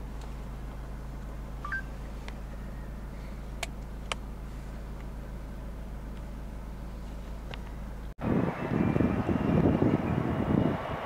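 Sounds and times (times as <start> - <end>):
two-note beep: 1.6 - 1.9.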